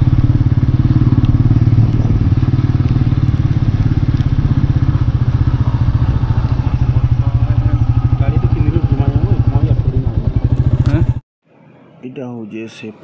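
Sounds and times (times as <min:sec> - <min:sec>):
motorcycle engine running: 0:00.0 - 0:11.2.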